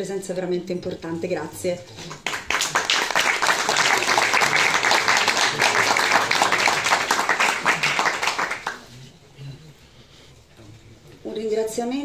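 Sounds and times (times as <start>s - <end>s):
audience applauding: 2.0s - 8.9s.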